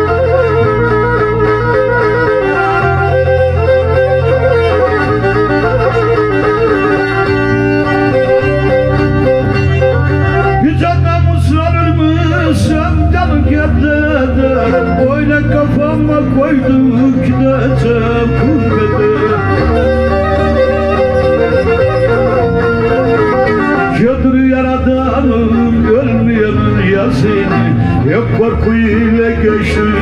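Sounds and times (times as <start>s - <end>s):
bowed fiddle folk tune: 0.0s - 30.0s
low bass notes: 0.0s - 30.0s.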